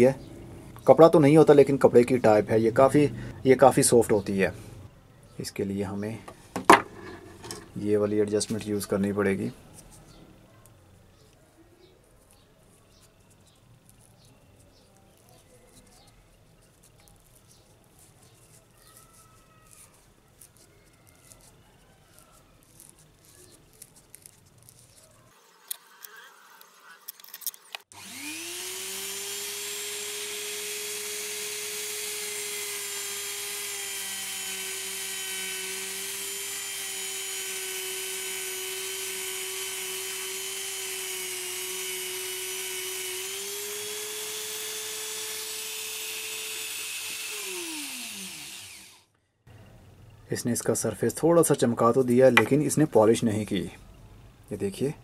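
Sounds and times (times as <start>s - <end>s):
rotary tool whining: 6.8s - 7.8s, 12.2s - 49.2s.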